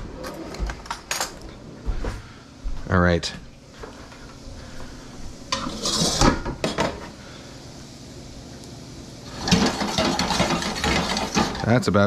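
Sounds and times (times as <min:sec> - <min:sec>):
metal cookware clattering: 0:05.5 - 0:07.0, 0:09.4 - 0:11.8.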